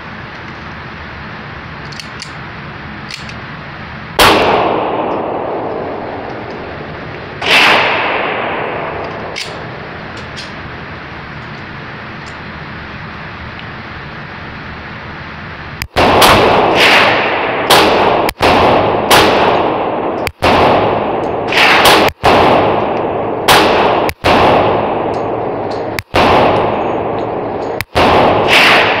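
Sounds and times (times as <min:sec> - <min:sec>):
pistol shots echoing indoors: 0:04.2 - 0:05.8, 0:07.4 - 0:09.6, 0:16.0 - 0:29.0.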